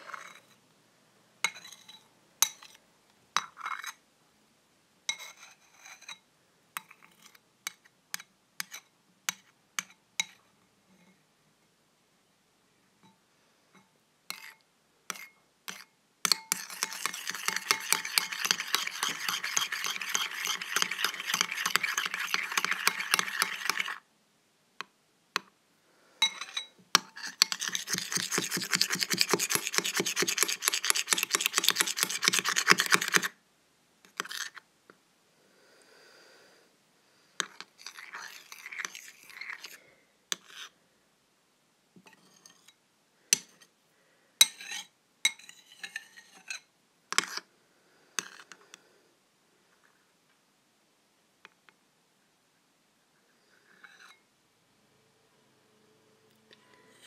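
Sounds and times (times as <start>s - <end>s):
utensil stirring slime: 0.0s - 0.6s, 14.3s - 24.1s, 26.4s - 33.4s, 34.1s - 34.6s, 37.4s - 40.8s, 48.2s - 48.6s.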